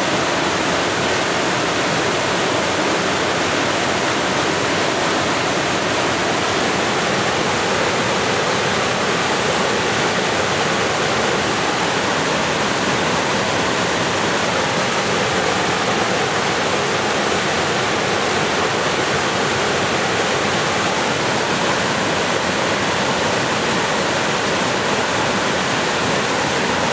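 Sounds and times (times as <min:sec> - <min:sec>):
waterfall rushing: 0:00.0 - 0:26.9.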